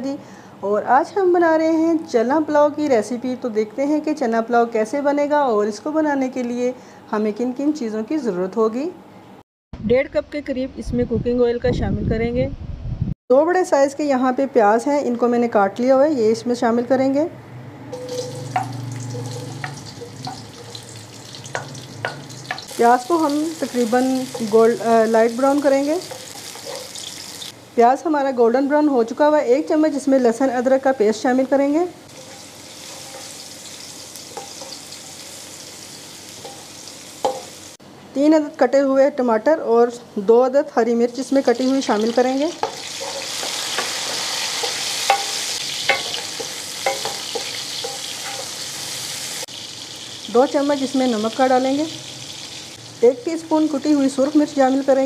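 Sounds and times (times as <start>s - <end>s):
woman speaking: 9.8s - 12.6s, 13.3s - 17.4s, 22.8s - 26.1s, 27.8s - 32.0s, 38.2s - 42.6s, 50.3s - 52.0s, 53.0s - 55.0s
wooden spoon knocking on pan: 18.0s - 20.5s, 21.5s - 22.7s, 36.4s - 37.5s, 44.6s - 48.5s
onions sizzling in hot oil: 18.0s - 27.6s, 29.6s - 37.8s, 41.1s - 55.0s.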